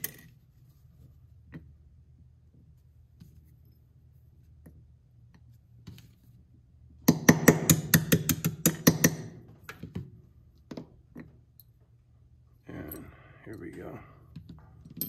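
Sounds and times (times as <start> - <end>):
hammer tapping a pin punch: 7.1 - 9.3.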